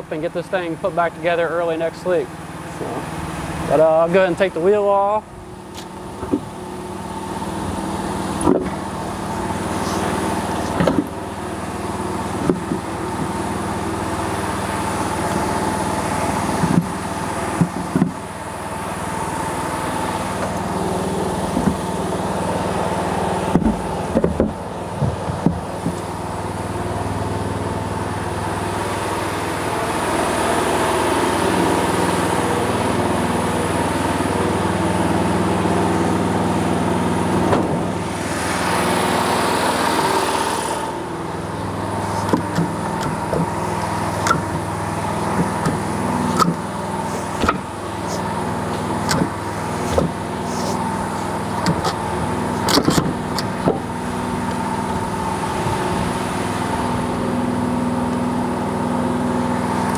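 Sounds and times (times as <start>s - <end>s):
engine running: 0.0s - 59.9s
clunks of heavy wheel handled: 5.7s - 6.6s, 8.4s - 8.9s, 9.7s - 11.4s, 12.2s - 13.6s, 16.5s - 18.3s, 21.4s - 22.4s, 23.2s - 26.7s, 37.4s - 38.0s, 41.6s - 55.8s.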